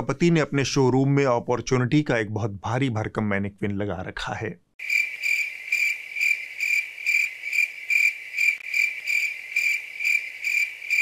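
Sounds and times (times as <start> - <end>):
cricket chirp sound effect: 4.8 - 11.0.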